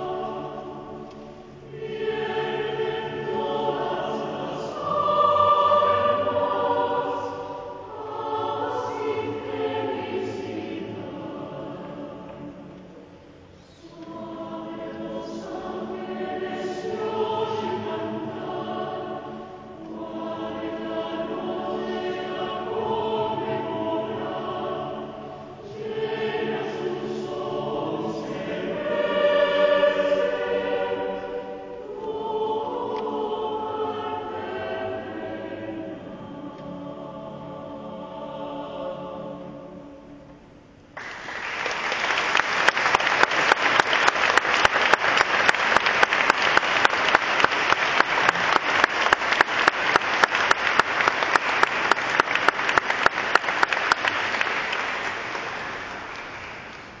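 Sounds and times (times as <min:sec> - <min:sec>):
mixed choir singing: 0:00.0 - 0:40.5
audience applause: 0:41.0 - 0:57.0.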